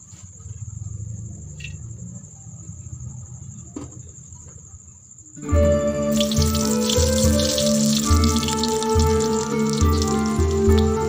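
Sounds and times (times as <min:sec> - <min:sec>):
crickets chirring: 0:00.0 - 0:11.0
background music: 0:05.4 - 0:11.0
oil pouring into a wok: 0:06.1 - 0:11.0.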